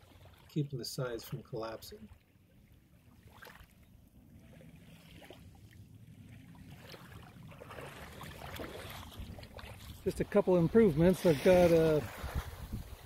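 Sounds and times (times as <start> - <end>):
wading in shallow water: 0.0 - 13.0
kayak set down on water: 6.3 - 12.8.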